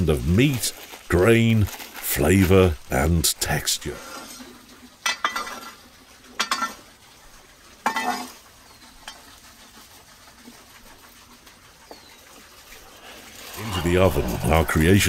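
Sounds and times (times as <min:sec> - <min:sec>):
utensil scraping a pot: 0:03.9 - 0:05.8, 0:06.4 - 0:15.0.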